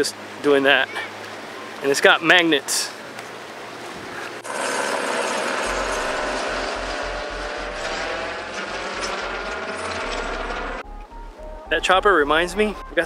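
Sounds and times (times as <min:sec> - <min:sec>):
helicopter rotor blades chopping: 0:04.3 - 0:10.8.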